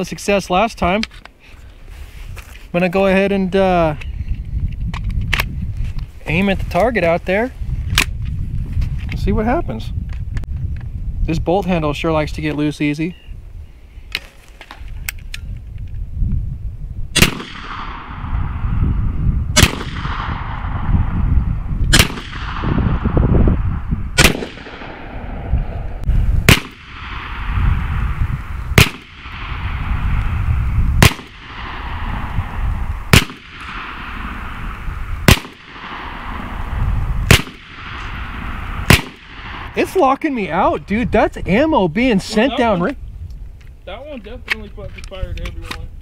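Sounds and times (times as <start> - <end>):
low rumble: 16.2 - 42.2
air pistol shots: 17.2 - 18.7, 19.5 - 21.0, 21.9 - 23.2, 24.2 - 25.5, 26.4 - 28.0, 28.7 - 30.2, 31.0 - 39.8.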